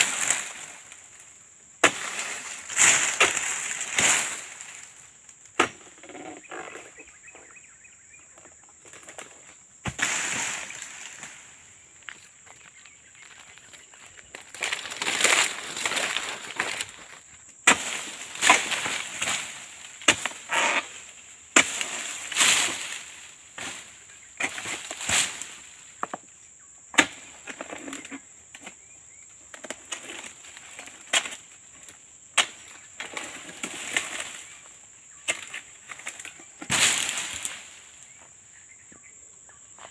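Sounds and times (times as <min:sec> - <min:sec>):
fronds snapping: 0:01.8 - 0:05.0, 0:14.3 - 0:20.8
footsteps on dry fronds: 0:09.3 - 0:20.8.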